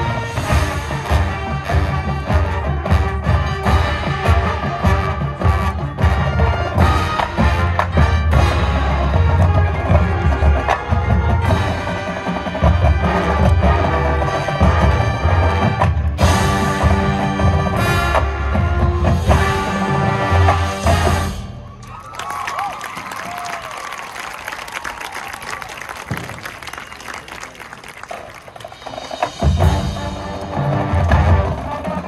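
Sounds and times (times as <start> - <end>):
marching band playing: 0.0 - 32.0
percussion strikes: 28.2 - 32.0.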